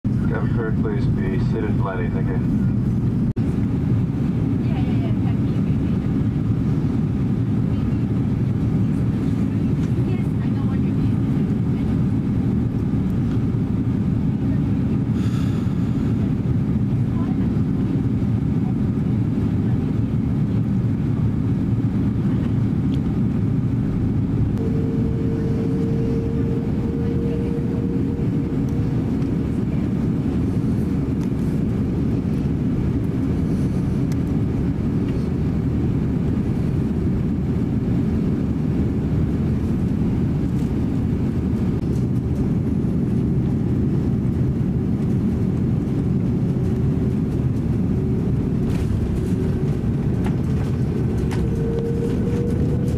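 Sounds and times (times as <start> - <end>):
airflow over fuselage: 0.0 - 52.9
jet engine rumble: 0.0 - 52.9
high whine: 23.6 - 37.4, 44.4 - 52.9.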